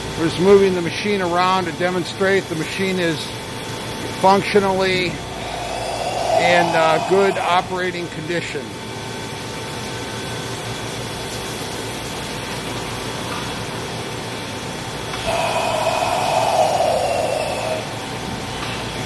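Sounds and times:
steady machine hum: 0.0 - 9.5, 12.7 - 18.6
machine whirring: 5.1 - 7.8, 15.1 - 18.0.

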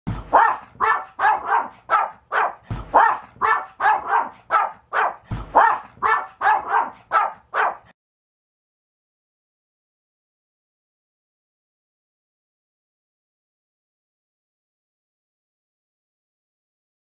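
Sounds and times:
small dog yapping: 0.3 - 7.9.

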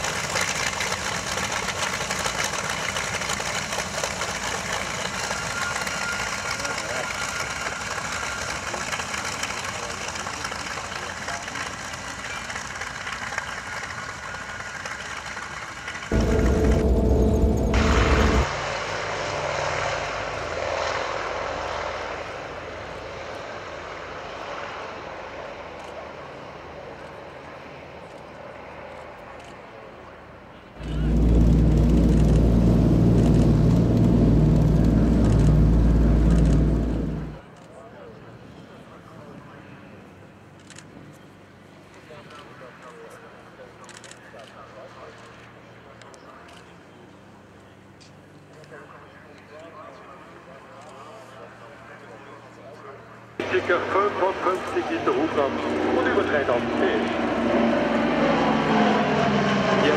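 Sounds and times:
propeller plane engines droning: 0.0 - 59.9
deep loud engine rumble: 16.1 - 23.8, 30.7 - 37.5.

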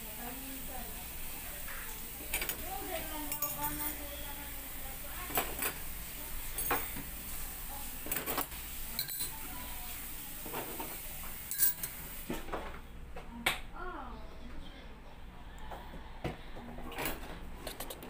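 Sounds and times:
cutlery clinking against ceramic bowls: 3.2 - 4.1, 5.3 - 5.8, 6.5 - 7.1, 8.0 - 9.4, 10.6 - 12.0.

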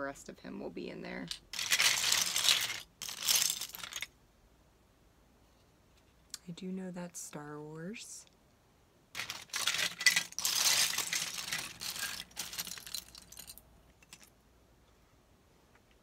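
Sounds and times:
plastic bricks clattering: 1.2 - 4.1, 9.2 - 14.3.

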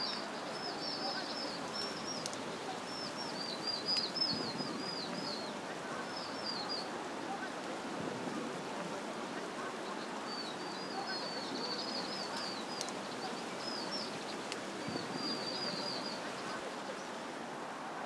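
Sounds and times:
steady background hiss: 0.0 - 18.0
songbird twittering: 9.9 - 17.2.

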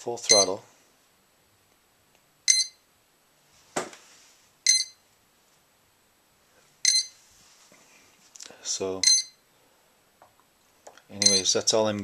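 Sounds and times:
short high motor beeps: 4.7 - 5.0.

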